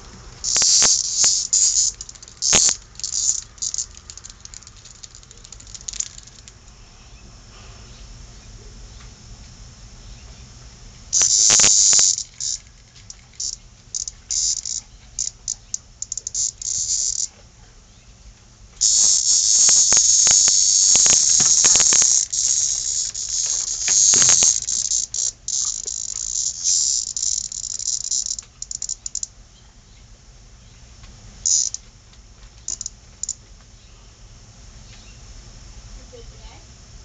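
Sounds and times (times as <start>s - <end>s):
cicada distress buzz: 0.0s - 8.6s, 9.6s - 17.4s, 18.8s - 29.4s, 31.4s - 31.9s, 32.6s - 33.4s
sharp clicks: 0.4s - 6.7s, 11.2s - 17.3s, 18.8s - 29.3s.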